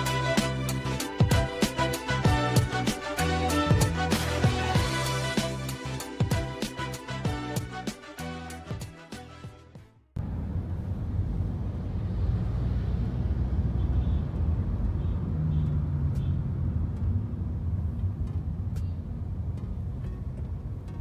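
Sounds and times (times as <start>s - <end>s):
car engine and road noise: 10.1s - 21.0s.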